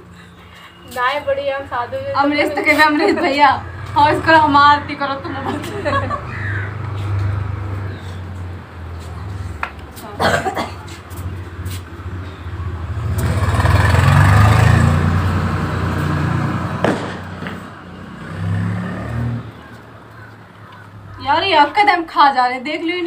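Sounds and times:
road vehicle passing: 0:00.0 - 0:23.0.

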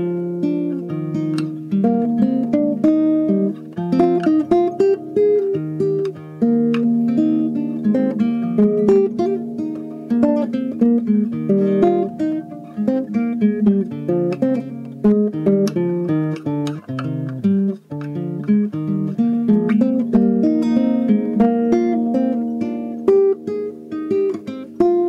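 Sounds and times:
acoustic guitar music: 0:00.0 - 0:25.0.

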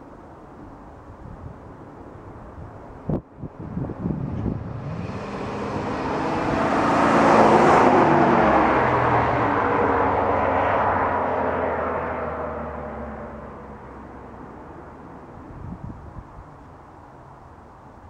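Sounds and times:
truck exhaust passing: 0:03.7 - 0:14.1.

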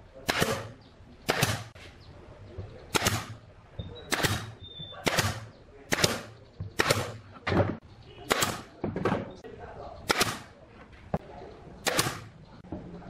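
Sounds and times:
nail gun firing into wood: 0:00.2 - 0:01.8, 0:02.9 - 0:03.4, 0:04.1 - 0:07.2, 0:08.3 - 0:08.8, 0:10.0 - 0:10.5, 0:11.8 - 0:12.3.

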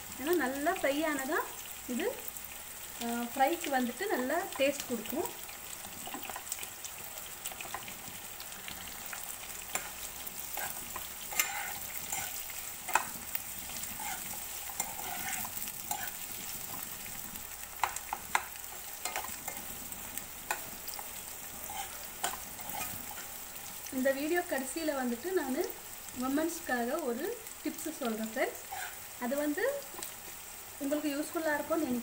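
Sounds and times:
onions sizzling in hot oil: 0:00.0 - 0:32.0
spatula tapping and scraping pan: 0:09.7 - 0:13.2, 0:17.8 - 0:19.6, 0:20.5 - 0:20.7.

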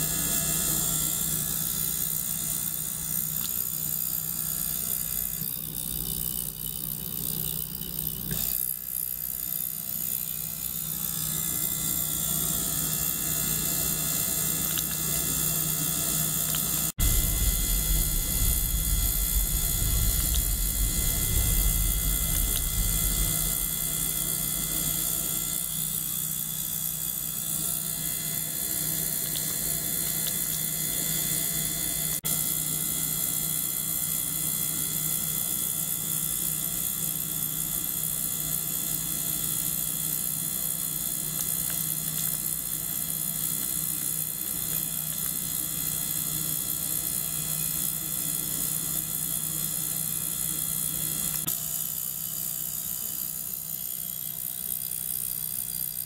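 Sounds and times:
pump and ultrasonic cleaners whirring: 0:00.0 - 0:56.0.

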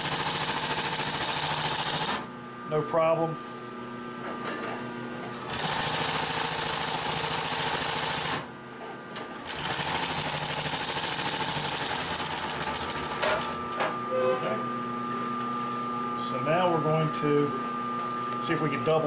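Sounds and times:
sewing machine stitching leather: 0:00.0 - 0:02.2, 0:05.5 - 0:08.4, 0:09.4 - 0:13.6.

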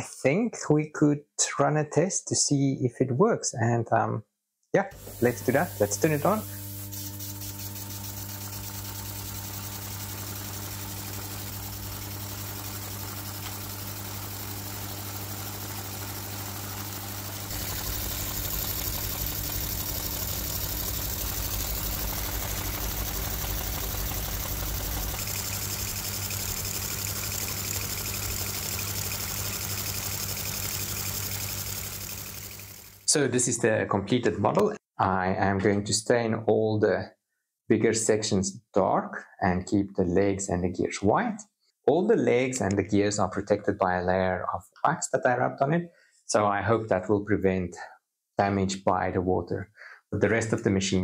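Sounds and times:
mechanical hum of model gears: 0:05.0 - 0:33.1.

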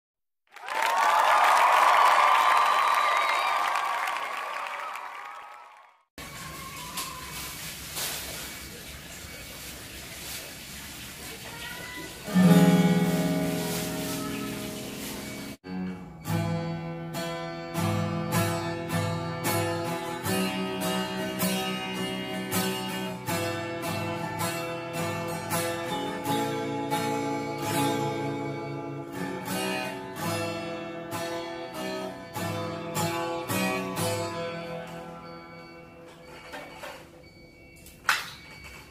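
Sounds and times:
acoustic guitar strumming chords: 0:12.2 - 0:36.9.

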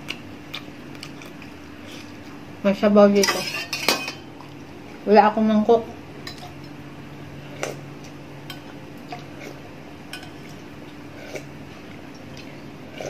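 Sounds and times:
steady low hum: 0:00.0 - 0:13.0
metal pot and spoon clinking: 0:03.2 - 0:04.3.

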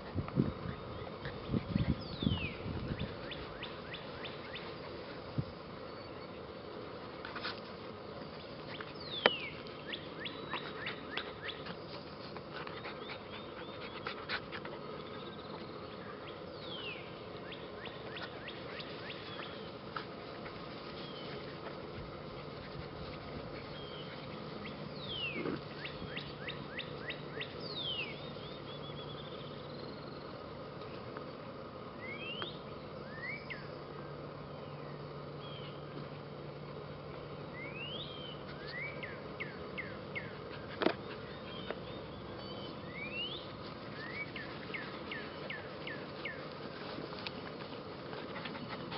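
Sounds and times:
steady outdoor hiss: 0:00.0 - 0:48.9
birds chirping and trilling: 0:00.5 - 0:05.1, 0:08.3 - 0:11.7, 0:14.9 - 0:21.7, 0:22.4 - 0:30.4, 0:37.5 - 0:46.6.

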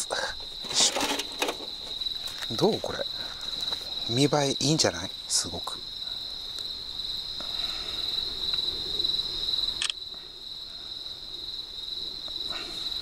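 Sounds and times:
crickets chirping: 0:00.0 - 0:13.0
sharp click: 0:09.8 - 0:10.0.

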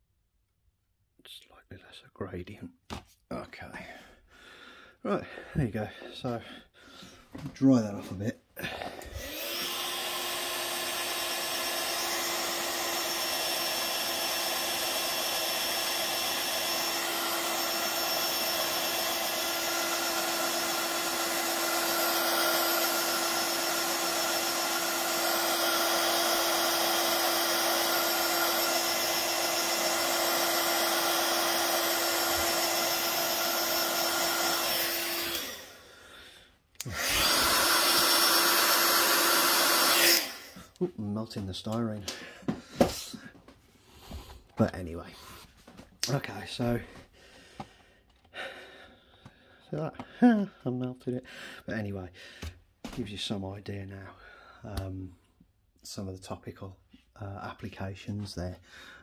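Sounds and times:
hot-air dryer blowing: 0:08.6 - 0:36.1, 0:36.8 - 0:40.9, 0:42.0 - 0:44.4
dryer motor hum: 0:09.0 - 0:35.8.

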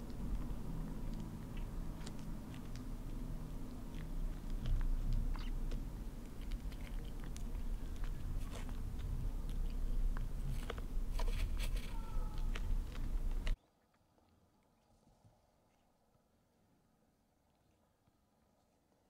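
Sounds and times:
kitten chewing and licking: 0:00.0 - 0:13.6
low rumble: 0:00.0 - 0:13.6.

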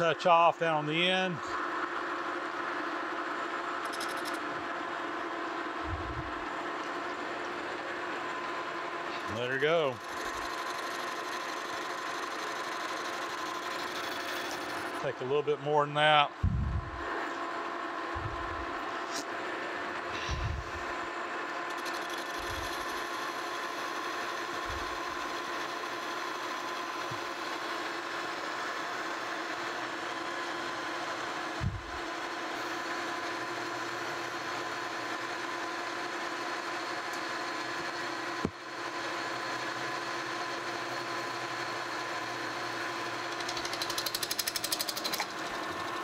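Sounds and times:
metal lathe humming with a whine: 0:00.0 - 0:46.0
fast rattle: 0:03.8 - 0:04.4, 0:21.7 - 0:23.2, 0:43.1 - 0:45.9.

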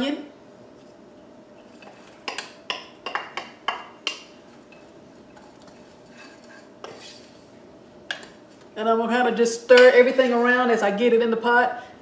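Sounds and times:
wooden spoon tapping a bowl: 0:02.3 - 0:04.3.

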